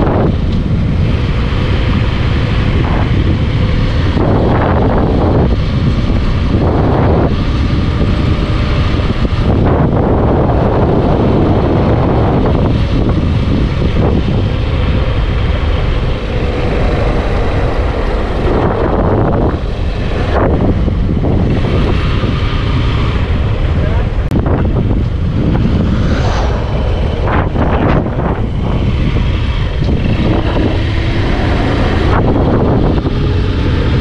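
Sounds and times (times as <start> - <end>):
wind rushing over microphone: 0.0 - 34.0
motorcycle engine running: 26.7 - 34.0.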